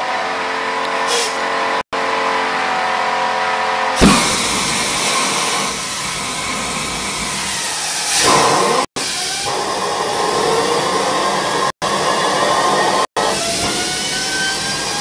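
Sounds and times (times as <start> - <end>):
thump: 4.0 - 4.4
gas turbine engine hissing: 4.0 - 15.0.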